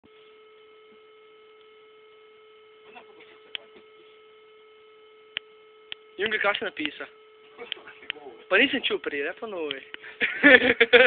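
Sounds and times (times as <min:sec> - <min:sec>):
electrical hum with high whine: 0:00.0 - 0:11.0
sharp clicks: 0:05.3 - 0:07.0.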